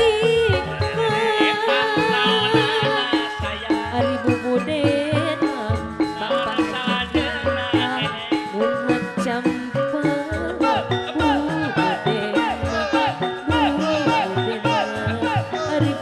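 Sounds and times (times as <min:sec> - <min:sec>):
gong-chimes melody: 0:00.0 - 0:16.0.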